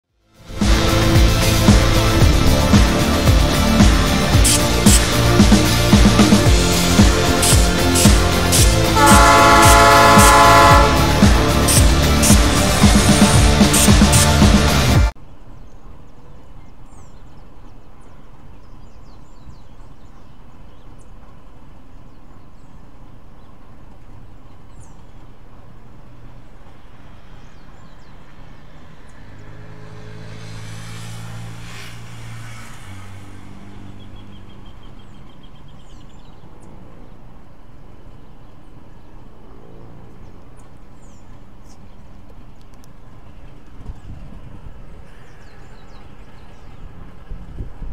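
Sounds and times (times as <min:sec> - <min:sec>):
motor vehicle engine passing: 0:00.4 - 0:15.2, 0:26.0 - 0:37.6, 0:38.8 - 0:42.5.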